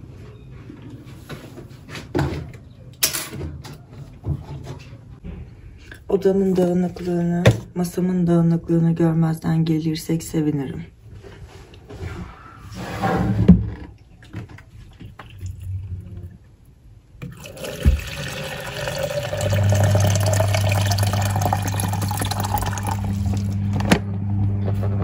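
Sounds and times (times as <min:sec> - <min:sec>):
kettle water rushing: 0:17.2 - 0:23.6
kettle low hum: 0:17.2 - 0:25.0.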